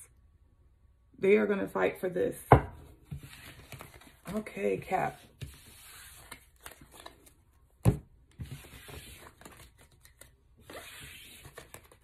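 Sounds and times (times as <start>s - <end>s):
cards sliding and rustling: 3.1s - 4.3s, 5.3s - 7.4s, 8.3s - 12.0s.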